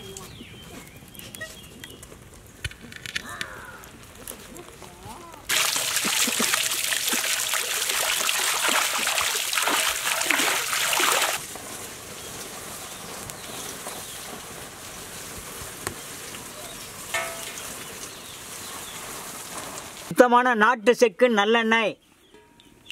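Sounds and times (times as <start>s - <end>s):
water gushing from hose: 5.5s - 20.1s.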